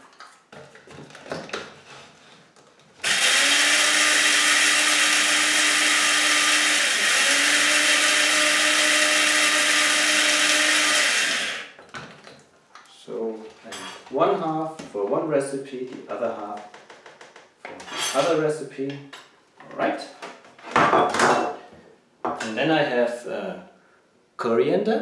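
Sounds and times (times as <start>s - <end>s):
electric grinder motor: 3.0s - 11.8s.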